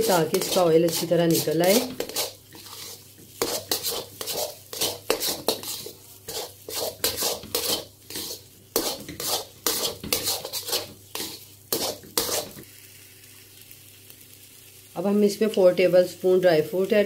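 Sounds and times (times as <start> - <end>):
spatula scraping metal pan: 0.0 - 12.6.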